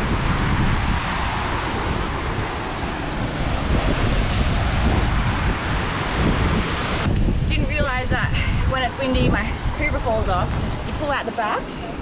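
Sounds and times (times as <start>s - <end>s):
waterfall rushing: 0.0s - 7.8s
wind buffeting microphone: 0.0s - 12.0s.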